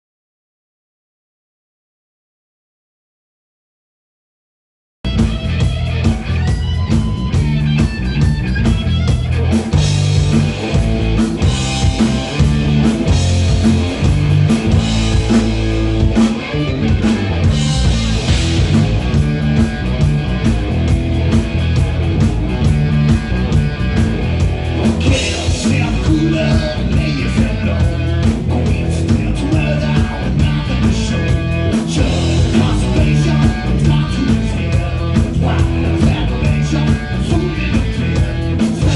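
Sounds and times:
bass guitar: 5.0 - 38.9
drum kit: 5.0 - 38.9
electric guitar: 5.1 - 38.9
man singing: 25.0 - 38.9.

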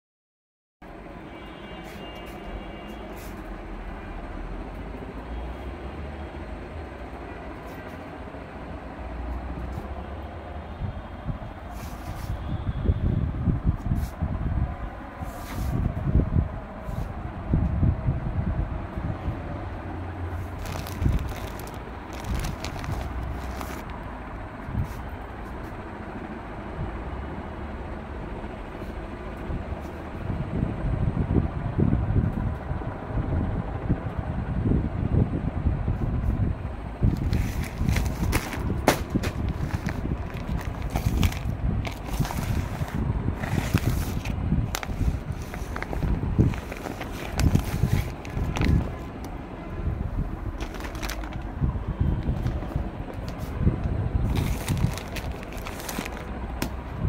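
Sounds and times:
low rumbling background noise: 0.8 - 57.0
plastic crackling: 20.5 - 24.0, 37.1 - 49.4, 50.6 - 51.6, 52.2 - 53.5, 54.2 - 56.8
phone handling rumble: 37.2 - 45.0.

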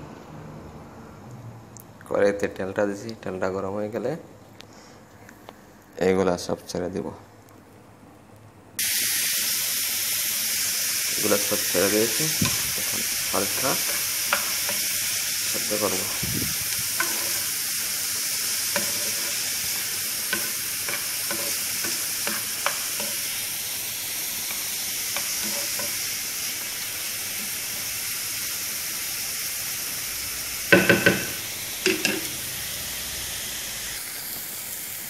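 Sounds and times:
vegetables sizzling in a frying pan: 8.8 - 35.0
utensil clicking on pan: 12.4 - 14.9, 16.9 - 17.5, 18.6 - 23.3, 24.5 - 26.0, 30.7 - 32.4.

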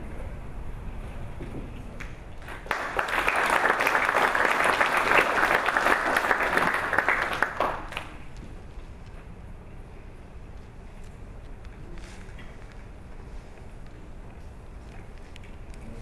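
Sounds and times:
audience applauding: 2.4 - 8.2.

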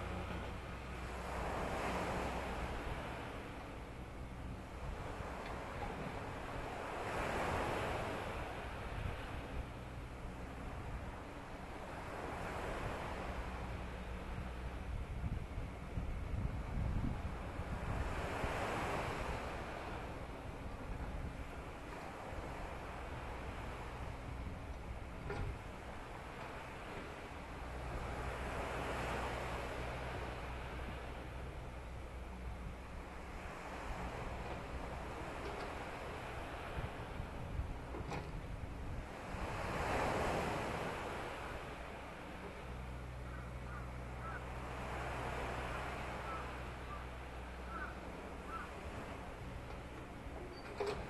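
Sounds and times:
wind rumbling on microphone: 0.0 - 41.9
surf washing on beach: 0.0 - 51.0
short bird calls: 47.7 - 48.7.

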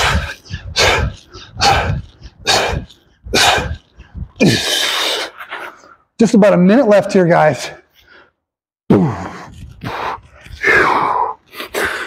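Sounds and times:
man grunting: 0.0 - 3.8
man breathing hard: 0.0 - 6.0, 7.9 - 12.0.

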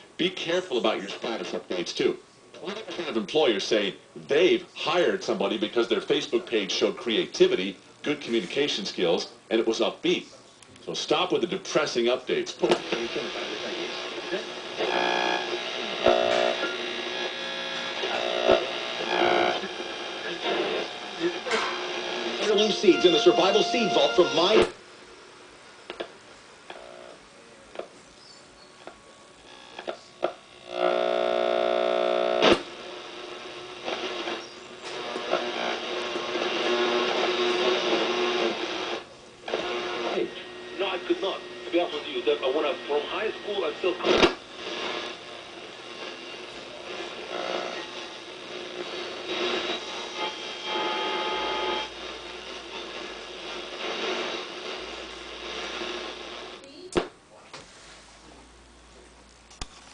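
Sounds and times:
radio static and signal: 0.2 - 9.5, 11.4 - 24.8, 29.5 - 56.6
steady buzzing tone: 13.2 - 24.8, 29.4 - 56.7
whistling radio tones: 22.1 - 24.7.

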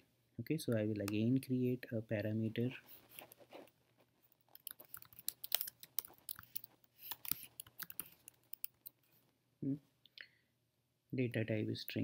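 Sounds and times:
typing on keyboard: 4.5 - 9.0.

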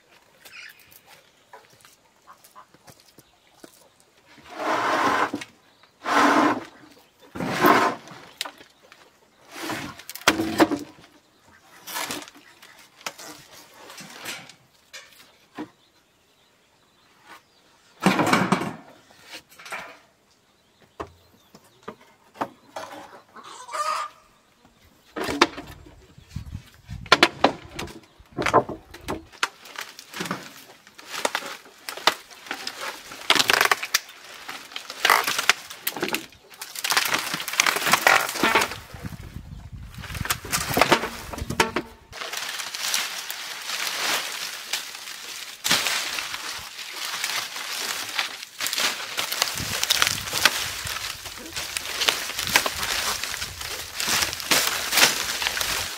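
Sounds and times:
bamboo poles knocking and cracking: 7.4 - 9.1, 9.7 - 11.2, 11.8 - 15.8, 25.2 - 26.0, 26.9 - 39.2, 39.9 - 55.9
dry thatch rustling: 29.3 - 55.9.

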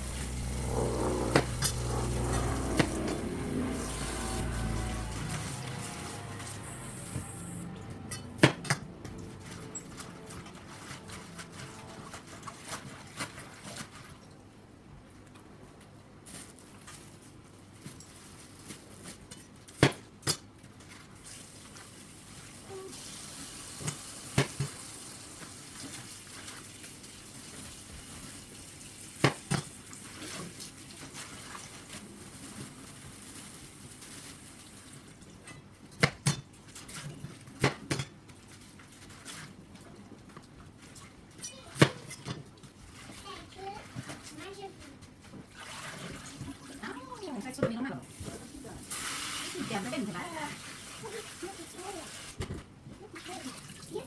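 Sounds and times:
water running from tap: 48.9 - 52.4.

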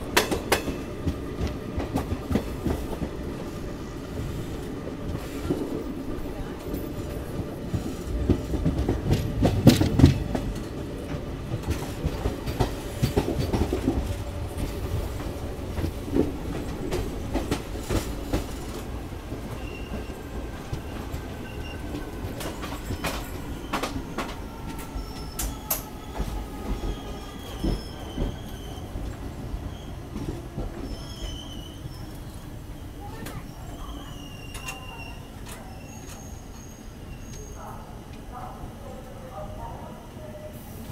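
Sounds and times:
rail joints clacking: 0.0 - 3.6, 4.3 - 32.4
train wheels rumbling on rail: 0.0 - 40.9
train wheel squeal: 19.5 - 37.8.

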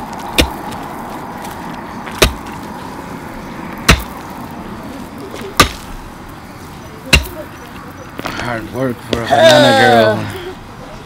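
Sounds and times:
pick striking stony ground: 0.0 - 2.7, 3.8 - 4.3, 5.4 - 6.0, 7.1 - 7.4.

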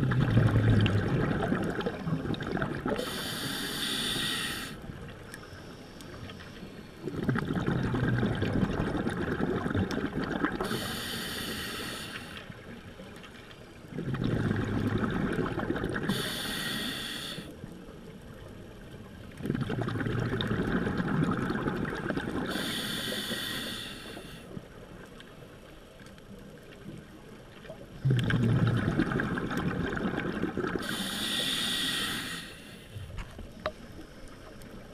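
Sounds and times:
exhaled air bubbling: 0.0 - 5.2, 7.0 - 12.8, 13.8 - 17.8, 18.6 - 24.7, 27.6 - 34.0
regulator inhale hiss: 2.9 - 7.0, 10.6 - 12.6, 16.1 - 17.6, 22.5 - 24.5, 30.8 - 33.1.

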